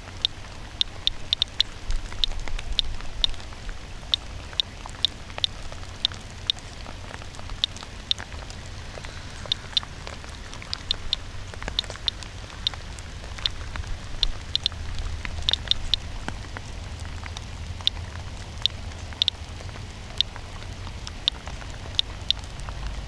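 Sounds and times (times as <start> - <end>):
geiger counter clicking: 0.0 - 6.7, 7.5 - 8.3, 8.9 - 13.6, 14.2 - 16.2, 18.6 - 19.4, 21.0 - 22.5
faint steady hiss: 0.0 - 23.0.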